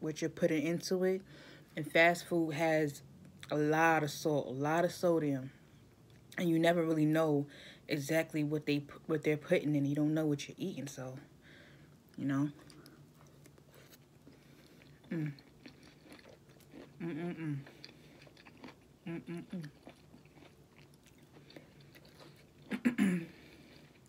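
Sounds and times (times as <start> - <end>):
woman chewing food: 11.9 - 24.0
woman humming closed-mouth: 17.0 - 17.6, 19.0 - 19.7.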